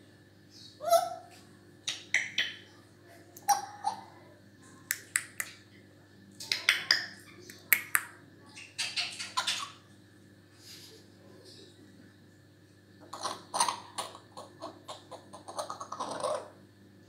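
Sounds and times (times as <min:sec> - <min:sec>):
parrot clicks and calls: 0:01.8 - 0:02.6, 0:04.9 - 0:05.6, 0:06.4 - 0:09.7.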